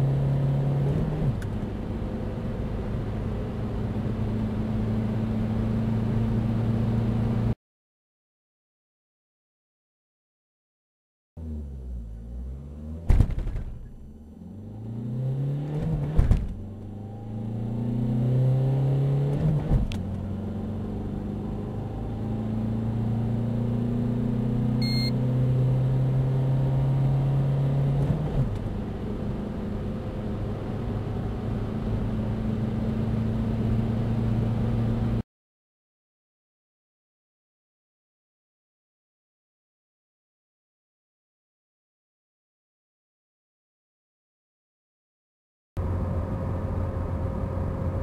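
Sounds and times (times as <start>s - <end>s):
car engine accelerating: 11.4s - 35.2s, 45.8s - 48.0s.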